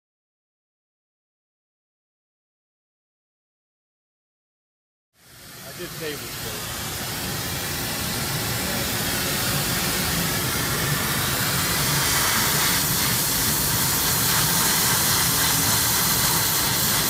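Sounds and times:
torch flame hissing: 5.2s - 17.0s.

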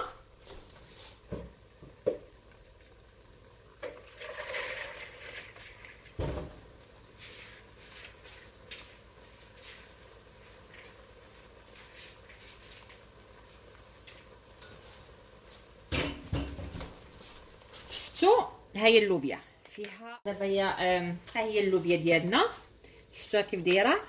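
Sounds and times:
sauce bubbling and sizzling: 0.0s - 24.0s.

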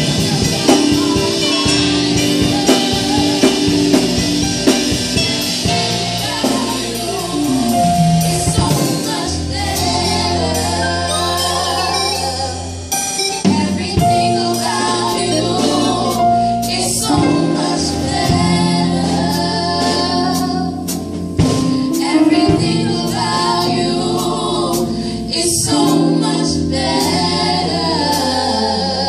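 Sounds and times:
woman singing lead: 0.0s - 4.7s, 5.6s - 20.8s
electric bass guitar: 0.0s - 29.0s
keyboard: 0.0s - 29.0s
women singing backing: 0.0s - 29.0s.

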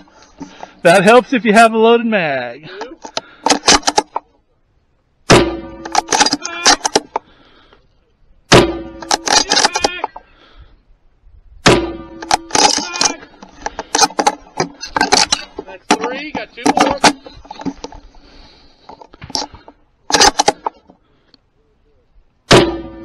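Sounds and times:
rifle shots: 5.3s - 7.0s, 8.5s - 9.9s, 11.6s - 13.1s, 22.5s - 23.0s.

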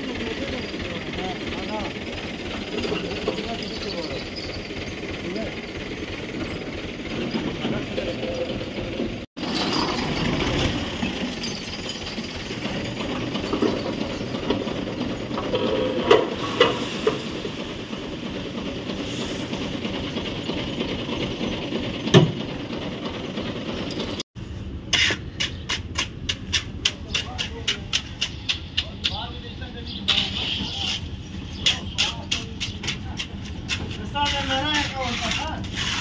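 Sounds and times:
construction machinery engine running: 0.0s - 34.8s
knocks and scrapes: 6.3s - 17.4s, 30.1s - 36.0s.

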